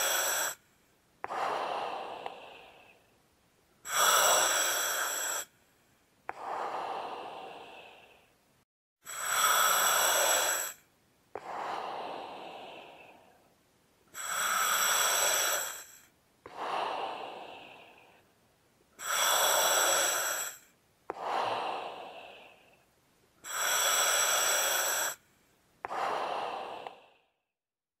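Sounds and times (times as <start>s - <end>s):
slow heavy breathing: 0.0s - 3.2s, 3.8s - 18.4s, 19.0s - 27.5s.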